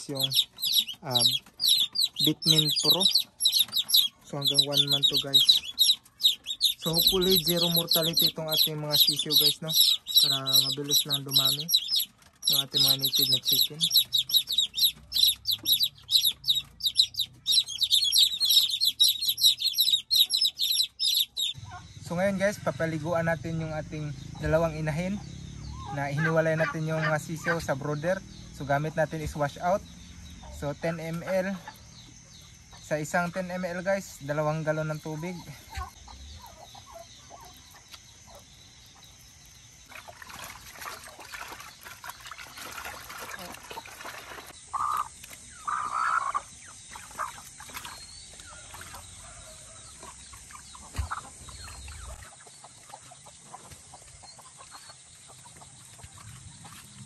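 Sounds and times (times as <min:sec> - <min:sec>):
chicks peeping: 0:00.0 - 0:57.0
water sloshing in plastic basin: 0:39.8 - 0:45.5, 0:47.0 - 0:54.0.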